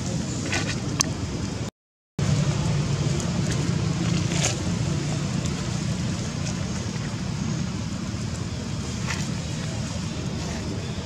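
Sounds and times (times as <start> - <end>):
steady low rumble: 0.0 - 11.0
faint crackles: 2.2 - 11.0.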